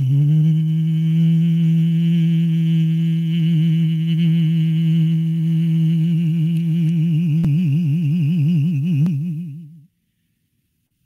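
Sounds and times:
beatboxer humming bass note: 0.0 - 9.9.

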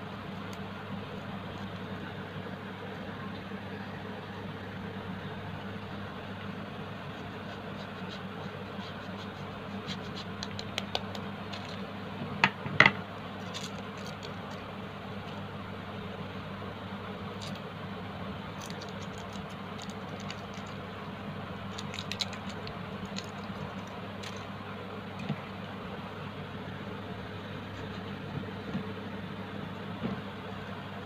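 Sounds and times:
steady low hum: 0.0 - 31.0
cheese grating on metal grater: 7.0 - 11.8
foil wrapper crinkling: 13.4 - 14.7, 18.5 - 20.8, 21.6 - 24.6.

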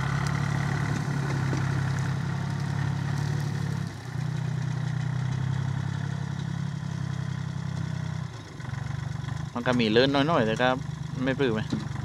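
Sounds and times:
mower cutting grass: 0.0 - 4.4
tractor engine running: 0.0 - 12.0.

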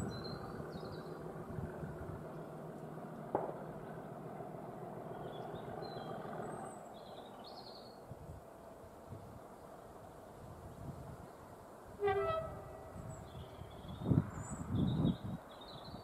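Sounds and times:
small birds chirping: 0.0 - 2.8, 5.0 - 8.1, 12.9 - 16.0.

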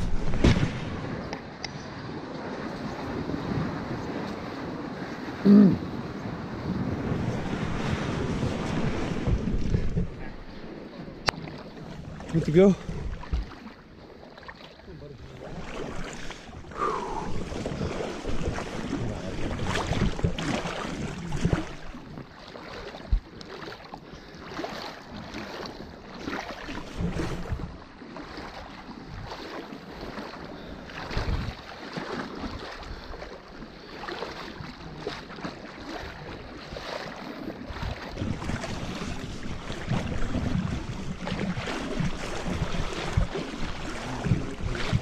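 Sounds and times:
thumps of wading steps: 0.0 - 1.8, 8.5 - 10.5, 11.2 - 13.8, 15.6 - 27.6, 34.1 - 45.0
water sloshing and splashing: 0.0 - 45.0.

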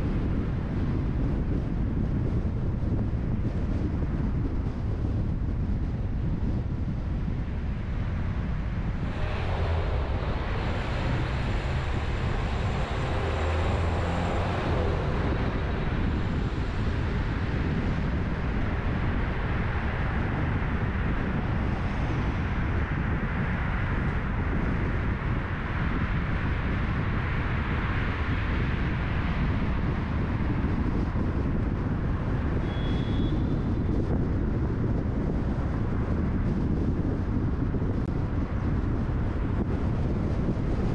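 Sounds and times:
road and tyre noise: 0.0 - 40.9
wind on microphone: 0.0 - 40.9
brief high squeak: 32.6 - 33.5.

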